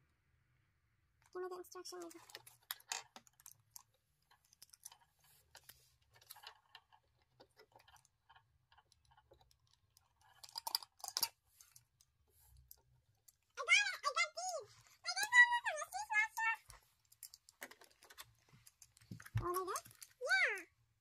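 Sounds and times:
plastic toy pieces clicking: 0:01.9 - 0:14.2, 0:16.3 - 0:20.6.

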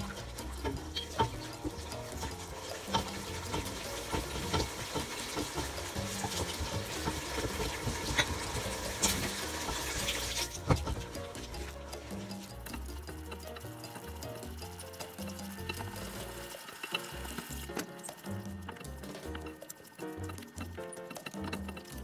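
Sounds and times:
spoon stirring thick soup: 0:00.0 - 0:22.0
spoon knocking against pot: 0:00.5 - 0:11.5.

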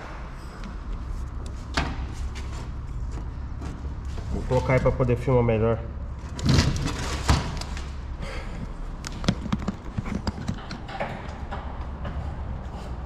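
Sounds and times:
steady low hum: 0:00.0 - 0:13.0
hard objects knocking and tapping: 0:09.1 - 0:13.0.

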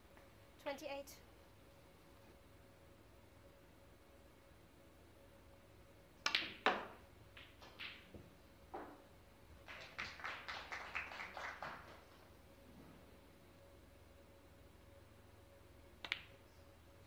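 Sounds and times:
cue striking cue ball: 0:06.2 - 0:09.0
snooker balls clicking: 0:06.2 - 0:09.1, 0:16.0 - 0:16.5.

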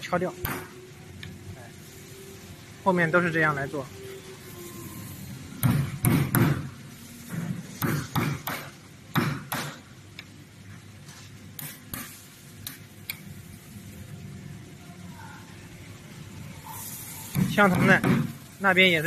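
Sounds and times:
hammer striking chisel: 0:05.6 - 0:06.6, 0:07.8 - 0:09.8.

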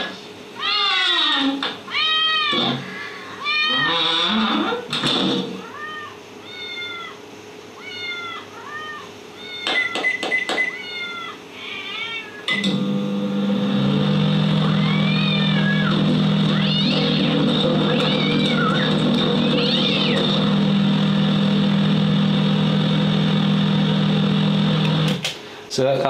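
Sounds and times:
microwave oven humming: 0:00.0 - 0:26.0
cat meowing: 0:00.6 - 0:04.8, 0:05.6 - 0:07.2, 0:07.8 - 0:10.0, 0:10.7 - 0:12.5, 0:14.6 - 0:20.4.

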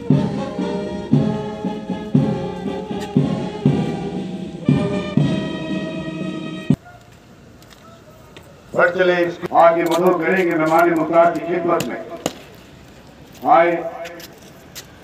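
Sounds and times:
brass band playing: 0:00.0 - 0:06.8
drum hits: 0:00.1 - 0:05.6.

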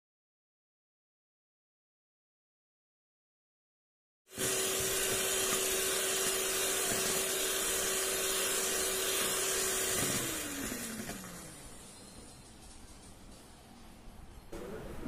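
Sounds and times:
electric hand mixer whipping: 0:04.3 - 0:12.6.

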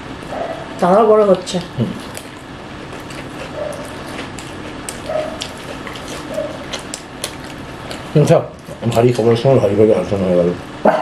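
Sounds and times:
chewing and lip-smacking: 0:01.5 - 0:09.4.

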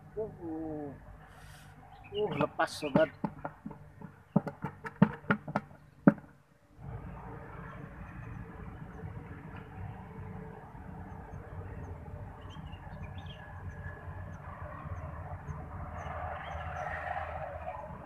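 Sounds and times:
small birds chirping: 0:00.1 - 0:06.1, 0:11.0 - 0:17.0.

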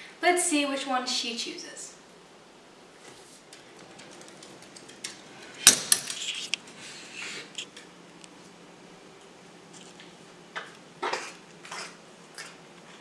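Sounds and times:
metal pet gate clanking: 0:03.9 - 0:06.2.

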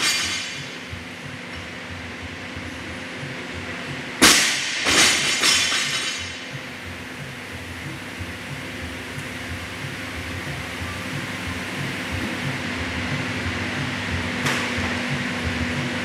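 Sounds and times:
barbell dropped on rubber floor: 0:04.2 - 0:06.4.

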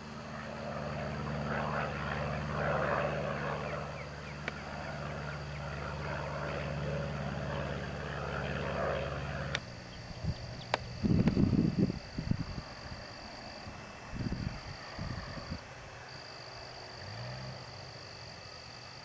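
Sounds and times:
light plane engine droning: 0:00.0 - 0:19.0
low rumbling gusts: 0:06.7 - 0:15.8.

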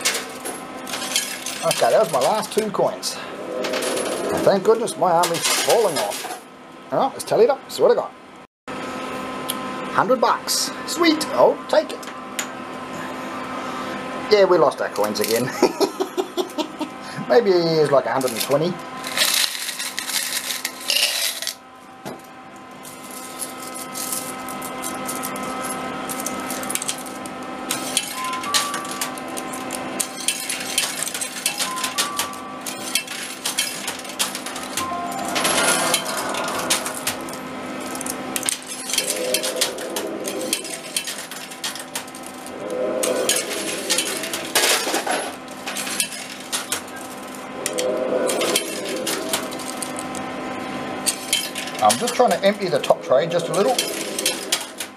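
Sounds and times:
background hum: 0:15.0 - 0:54.9
coins clinking and clattering: 0:19.1 - 0:21.6, 0:23.0 - 0:36.2.

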